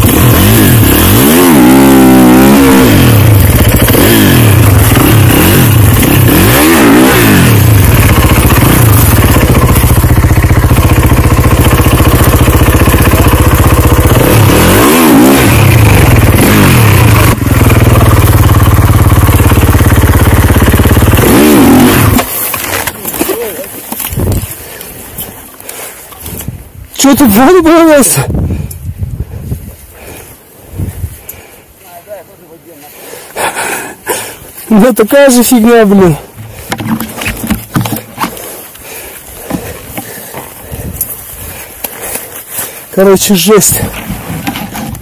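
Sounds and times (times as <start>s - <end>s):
snowbike engine revving: 0.0s - 22.8s.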